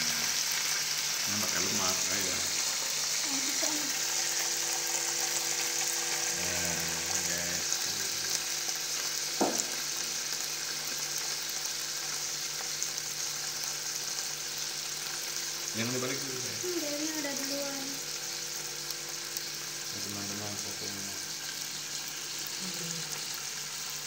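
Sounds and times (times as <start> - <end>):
meat sizzling on grill pan: 0.0 - 24.0
sharp knock: 9.4 - 9.7.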